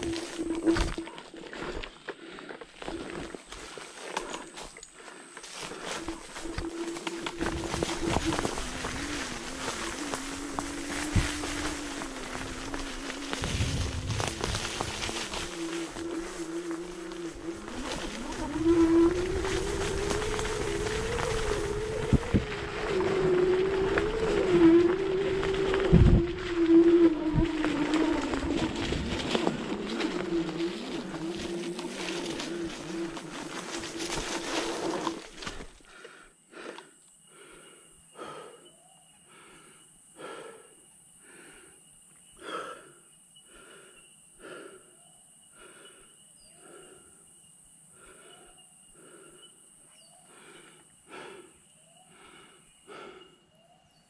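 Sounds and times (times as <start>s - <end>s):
person breathing heavily: 0.0s - 18.4s, 28.3s - 47.3s, 47.9s - 53.6s
rumble and rattle of scooter ride: 5.5s - 35.8s
electric scooter motor whine: 6.0s - 35.7s.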